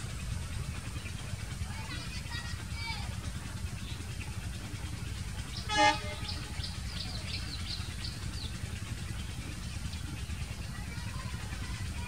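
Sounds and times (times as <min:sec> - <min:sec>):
locomotive low rumble: 0:00.0 - 0:12.0
train horn toot: 0:05.6 - 0:06.5.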